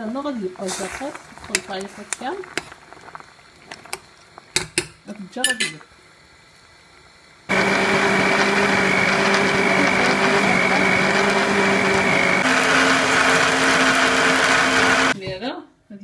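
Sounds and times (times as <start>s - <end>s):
electric blender running: 7.5s - 15.2s.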